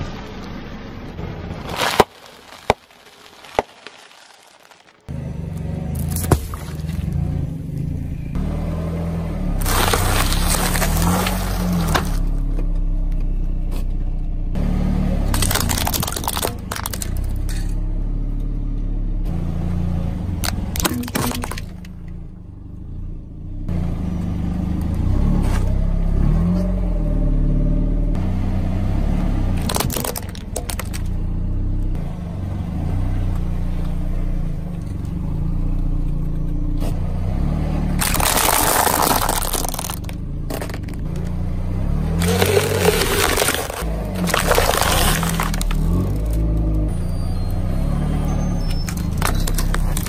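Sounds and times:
plastic crunching under tyre: 0:01.6 - 0:05.2, 0:05.9 - 0:07.2, 0:09.6 - 0:12.6, 0:15.3 - 0:17.7, 0:20.4 - 0:22.0, 0:29.6 - 0:31.2, 0:38.0 - 0:41.4, 0:42.0 - 0:46.8, 0:48.3 - 0:50.0
car engine running: 0:05.1 - 0:25.7.

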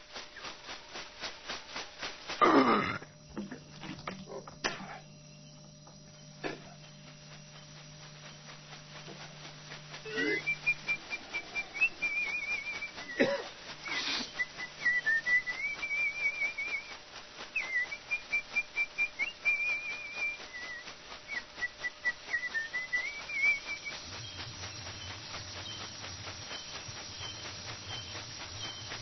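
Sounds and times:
leaf-bundle rattle shaking: 0:00.0 - 0:04.6, 0:05.4 - 0:29.0
person whistling trilled melody: 0:10.1 - 0:13.2, 0:13.8 - 0:16.9, 0:17.6 - 0:24.0.

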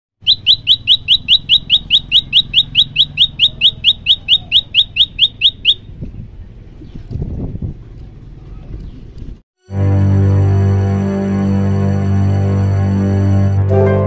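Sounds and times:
bird singing short rising notes: 0:00.2 - 0:05.9.

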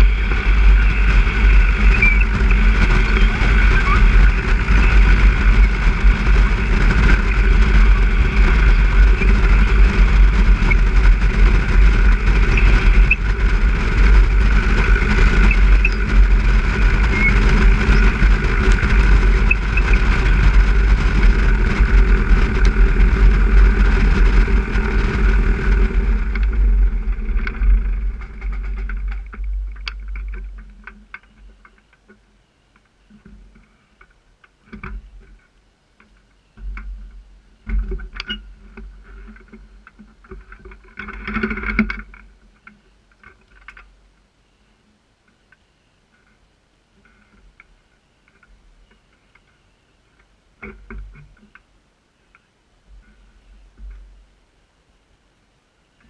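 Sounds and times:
light aircraft piston engine: 0:00.0 - 0:30.3.

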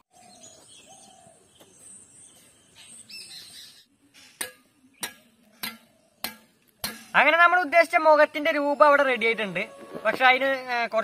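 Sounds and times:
stone striking stone: 0:04.4 - 0:07.1.

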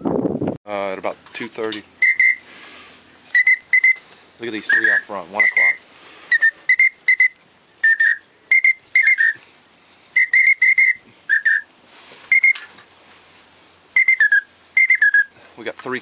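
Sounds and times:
duck call whistle chirps: 0:02.0 - 0:02.5, 0:03.3 - 0:04.0, 0:04.6 - 0:09.4, 0:10.2 - 0:11.7, 0:12.3 - 0:12.7, 0:14.0 - 0:15.4.

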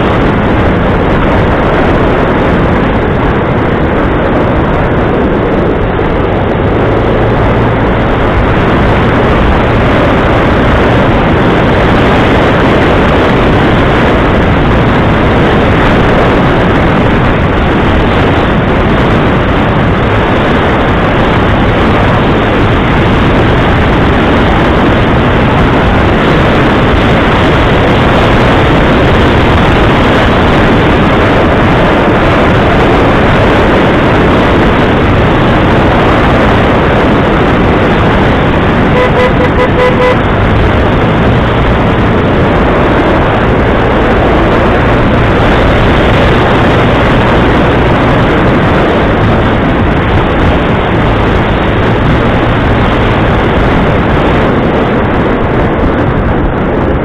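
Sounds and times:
vehicle engine and rushing: 0:00.0 - 0:57.0
horn toot: 0:38.9 - 0:40.4.

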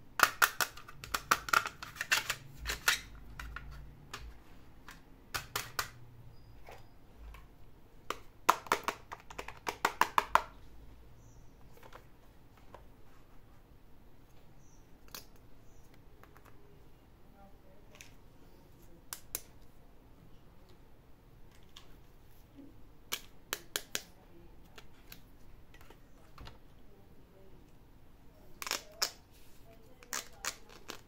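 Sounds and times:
plastic toy pieces clicking: 0:00.2 - 0:04.2, 0:28.6 - 0:29.2, 0:30.0 - 0:31.0.

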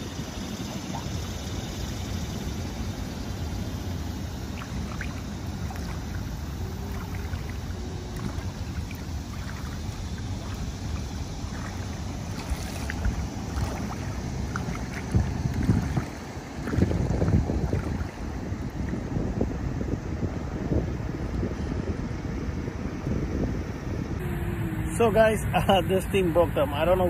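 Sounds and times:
shallow water splashing: 0:00.0 - 0:19.0
water drips: 0:04.4 - 0:18.2.

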